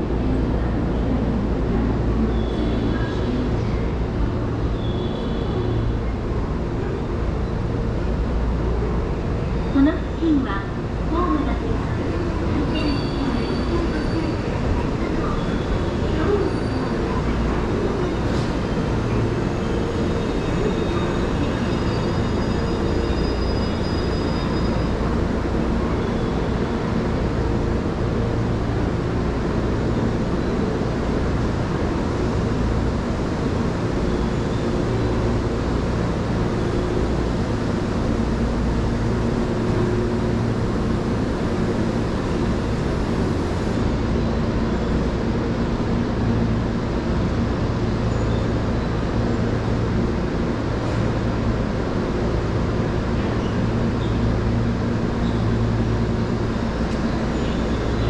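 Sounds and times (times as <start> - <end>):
train rumble and hum: 0.0 - 58.0.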